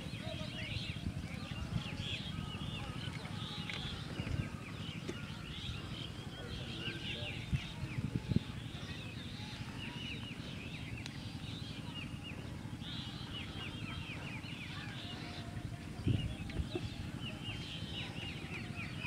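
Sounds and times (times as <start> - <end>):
birds chirping: 0.0 - 19.0.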